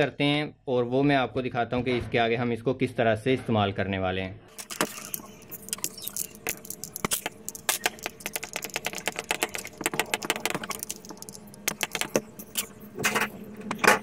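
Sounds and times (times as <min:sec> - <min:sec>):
small metal parts clicking: 0:04.5 - 0:14.0.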